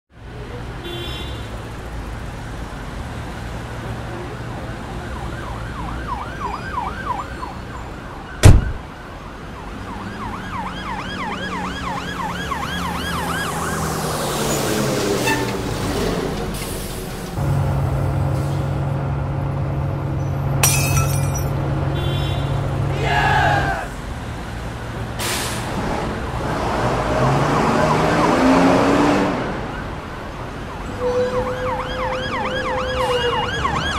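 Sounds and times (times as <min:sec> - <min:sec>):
city street traffic: 0:00.1 - 0:33.9
emergency siren wailing: 0:04.7 - 0:15.2, 0:26.2 - 0:28.8, 0:29.4 - 0:33.9.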